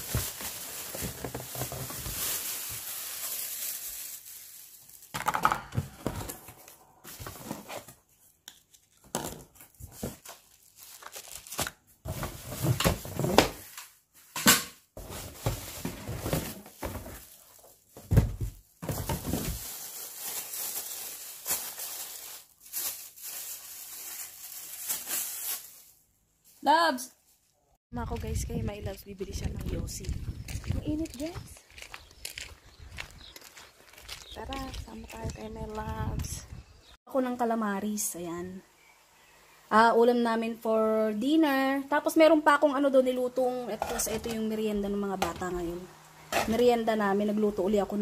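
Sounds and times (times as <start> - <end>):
plastic wrapping crinkling: 0.0 - 5.3, 7.1 - 14.3, 15.0 - 26.0.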